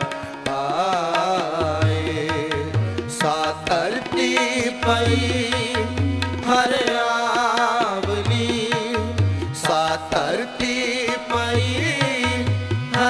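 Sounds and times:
harmonium tones: 0:00.0 - 0:13.0
man singing: 0:00.0 - 0:13.0
tabla drumming: 0:00.0 - 0:13.0.

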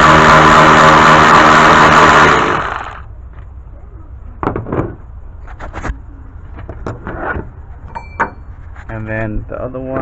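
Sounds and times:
power wrench motor whine: 0:00.0 - 0:03.1.

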